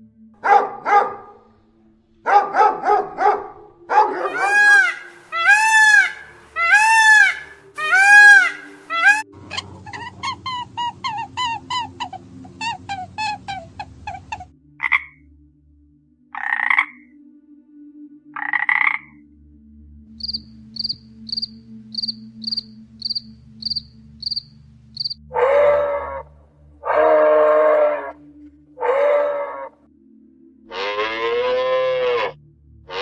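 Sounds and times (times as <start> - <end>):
deer calling: 2.3 - 15.2, 25.0 - 28.2, 28.8 - 29.7, 30.7 - 33.0
short animal calls: 4.2 - 15.1
grasshopper chirping: 20.2 - 25.2.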